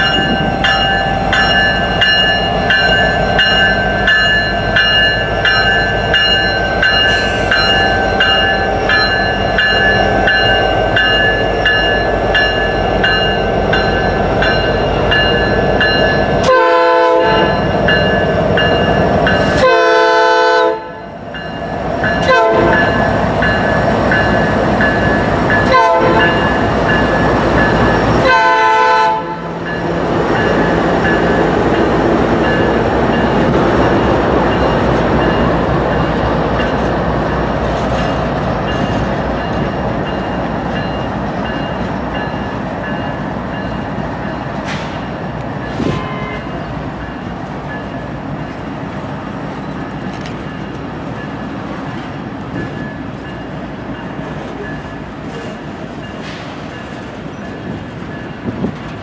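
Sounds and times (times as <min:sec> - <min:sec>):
diesel locomotives passing: 0:00.0 - 0:59.0
locomotive horn blasts: 0:16.4 - 0:17.6, 0:19.5 - 0:21.1, 0:22.2 - 0:23.0, 0:25.6 - 0:26.5, 0:28.2 - 0:29.6, 0:45.8 - 0:46.7.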